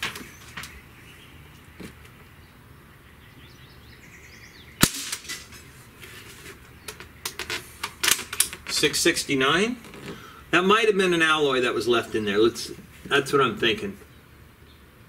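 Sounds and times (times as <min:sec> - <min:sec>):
air rifle shot crack: 0:04.8 - 0:05.5.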